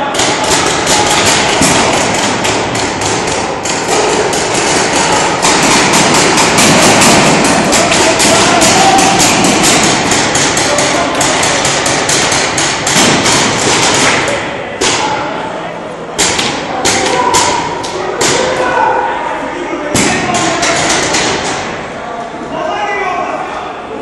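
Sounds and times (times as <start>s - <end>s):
paintball markers firing: 0.2s - 15.0s.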